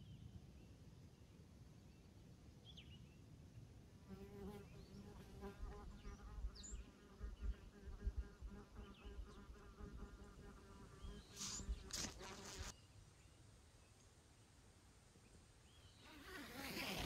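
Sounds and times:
insect buzzing: 0:04.1 - 0:12.7, 0:16.0 - 0:17.0.

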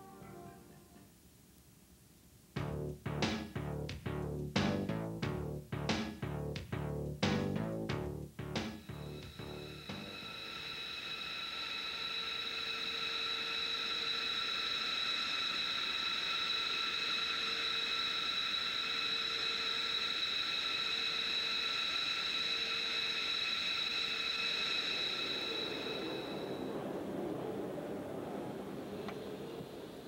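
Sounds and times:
jet engine high whine: 0:08.8 - 0:30.0.

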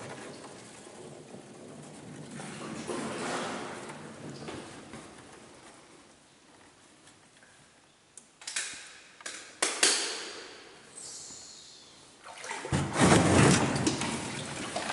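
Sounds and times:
water sloshing: 0:12.2 - 0:14.9.

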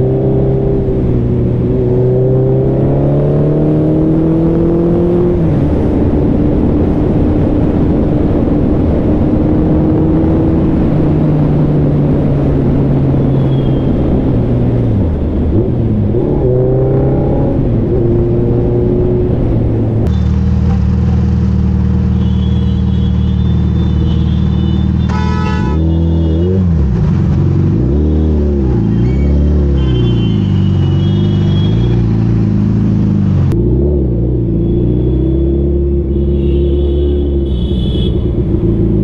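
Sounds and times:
short horn beep: 0:22.2 - 0:26.5
motorcycle engine revving: 0:23.4 - 0:39.0.

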